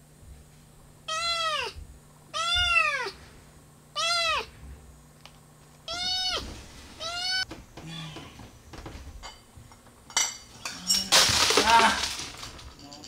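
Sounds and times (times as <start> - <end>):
kitten meowing: 1.1 - 3.2, 4.0 - 4.5, 5.9 - 8.2.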